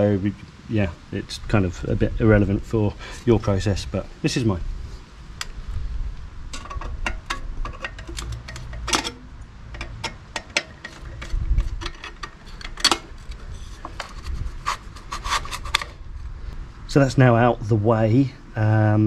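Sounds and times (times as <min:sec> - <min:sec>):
metallic clicks and taps: 0:06.6 - 0:13.0
sharp metal knocks: 0:06.6 - 0:13.1.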